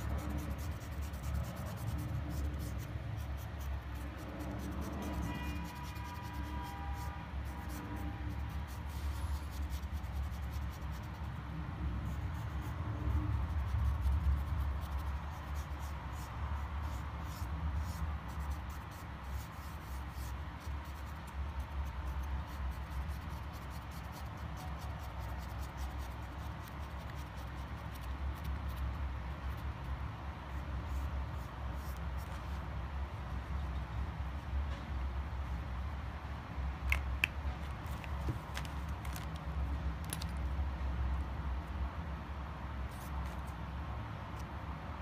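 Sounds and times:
marker tip scratching on stone: 0:00.0 - 0:11.4, 0:12.1 - 0:32.4
low steady rumble: 0:00.0 - 0:45.0.

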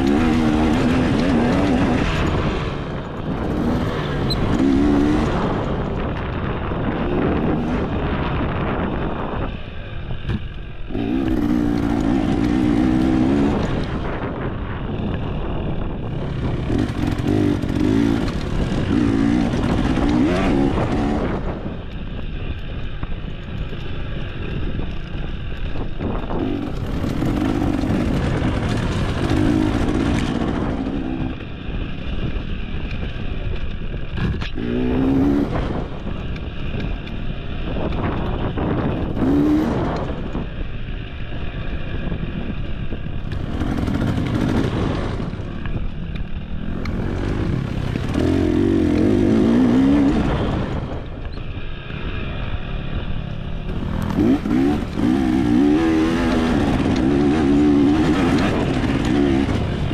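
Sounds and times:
dirt bike engine revving: 0:00.0 - 0:22.1, 0:23.7 - 0:32.7, 0:34.1 - 0:41.2, 0:43.2 - 0:59.9.

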